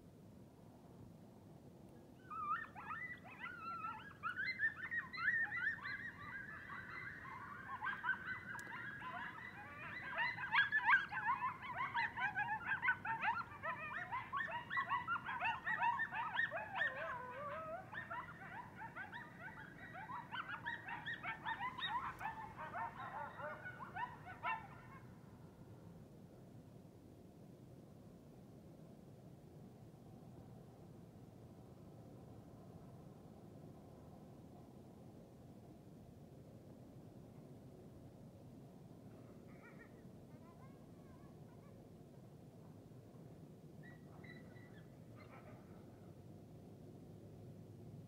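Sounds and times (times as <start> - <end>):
coyotes howling together: 2.2 - 25.1, 43.8 - 45.7.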